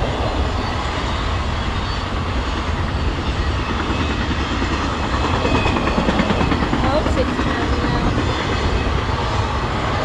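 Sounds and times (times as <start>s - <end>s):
train wheels on rail: 0.0s - 10.0s.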